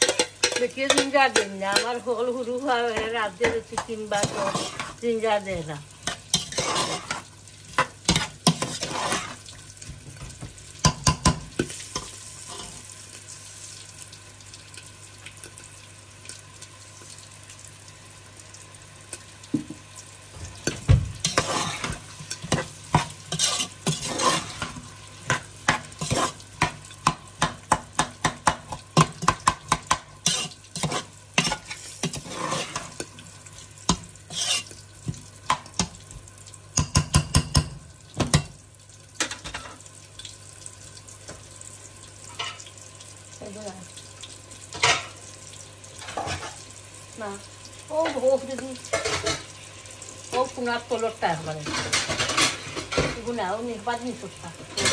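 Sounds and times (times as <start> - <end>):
spoon scraping a pan: 0.0 - 2.2, 2.9 - 5.2, 6.0 - 12.9, 20.5 - 36.1, 39.2 - 39.9, 42.2 - 42.7, 44.7 - 45.2, 46.0 - 46.7, 48.0 - 49.6, 51.6 - 53.3, 54.6 - 54.9
food sizzling in a pan: 0.0 - 54.9.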